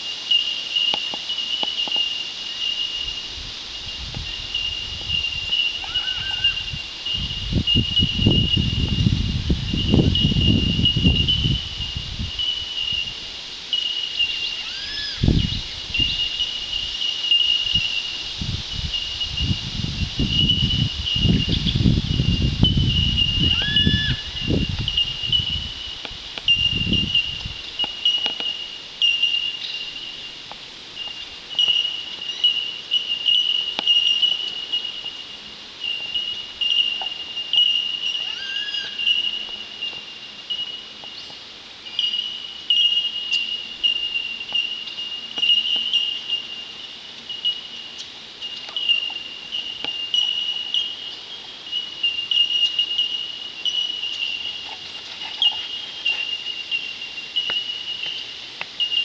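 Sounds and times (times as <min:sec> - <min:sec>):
birds' bell-like tink notes: 0:09.7 - 0:13.0, 0:13.7 - 0:18.0, 0:20.3 - 0:25.7, 0:26.5 - 0:30.4, 0:31.0 - 0:59.0.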